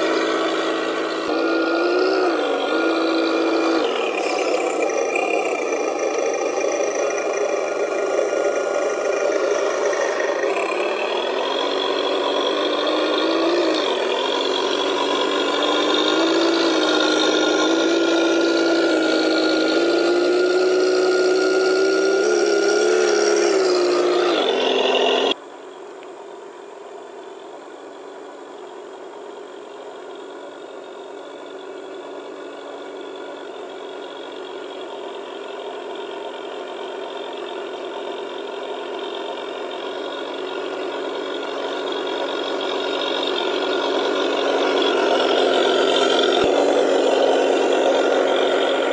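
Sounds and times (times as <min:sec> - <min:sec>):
quieter steady engine sound: 0:00.0 - 0:48.9
simulated toy truck engine: 0:00.0 - 0:48.9.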